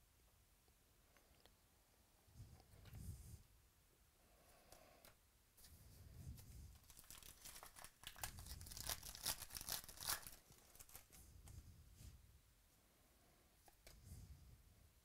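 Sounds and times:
foil wrapper tearing and crinkling: 0:06.8 - 0:11.2.

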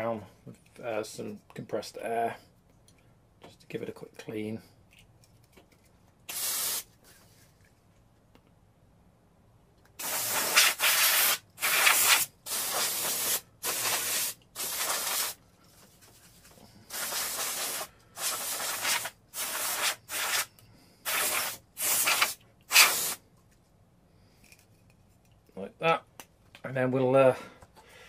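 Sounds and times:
compressed air hissing bursts: 0:06.3 - 0:06.9, 0:10.0 - 0:15.4, 0:16.8 - 0:23.2.

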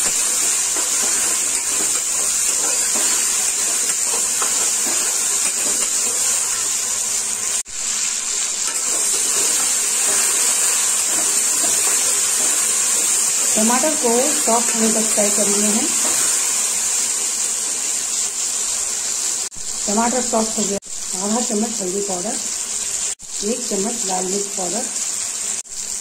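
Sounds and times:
spatula scraping pan: 0:00.0 - 0:07.0, 0:08.0 - 0:17.8
vegetables sizzling in oil: 0:00.0 - 0:26.0.

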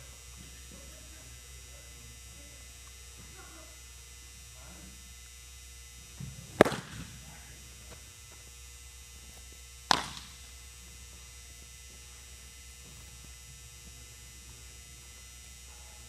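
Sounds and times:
baseball smacking into a mitt: 0:06.2 - 0:07.2, 0:09.9 - 0:10.4
ball popping into a glove: 0:06.6 - 0:07.1, 0:09.9 - 0:10.4.

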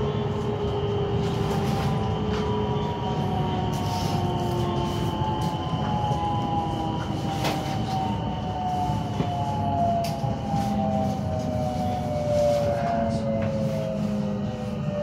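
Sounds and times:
wheels rumbling on rails: 0:00.0 - 0:15.0.

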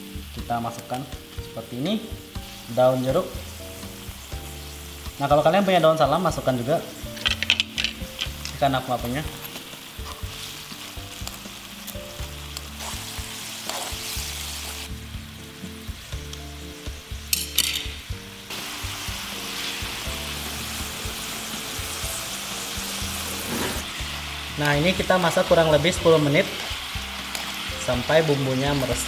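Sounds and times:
broth sizzling and bubbling: 0:00.0 - 0:29.0
soft background music: 0:00.0 - 0:29.0.

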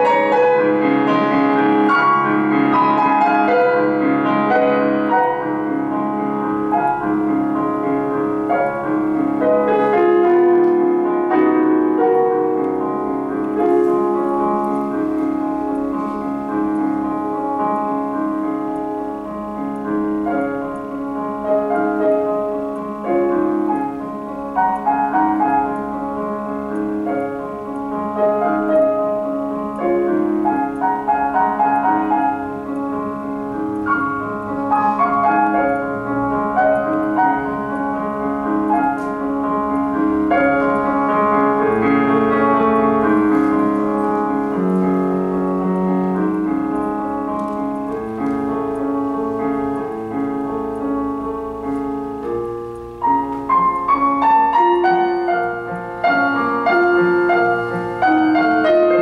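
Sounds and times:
solo piano music: 0:00.0 - 0:59.0.

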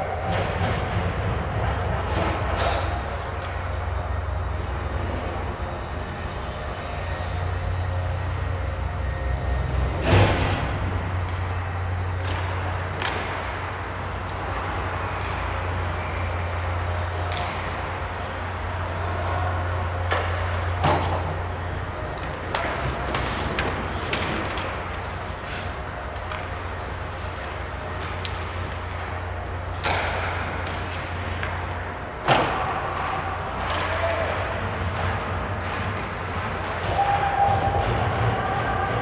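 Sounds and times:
low steady hum: 0:00.0 - 0:39.0
skates scraping ice: 0:11.2 - 0:39.0.

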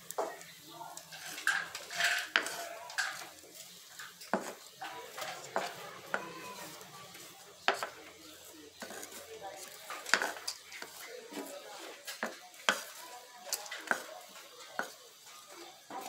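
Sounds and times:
wooden pestle knocking on griddle: 0:04.3 - 0:04.6, 0:07.6 - 0:08.0, 0:10.0 - 0:11.0, 0:12.2 - 0:13.0, 0:13.8 - 0:14.1, 0:14.8 - 0:15.0.

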